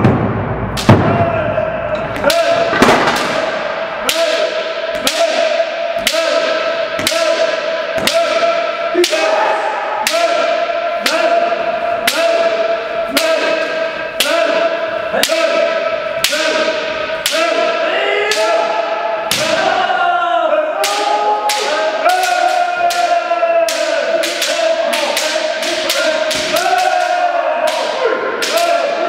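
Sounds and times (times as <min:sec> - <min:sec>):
people shouting: 0:00.8 - 0:29.0
bamboo swords striking armour: 0:19.3 - 0:19.8.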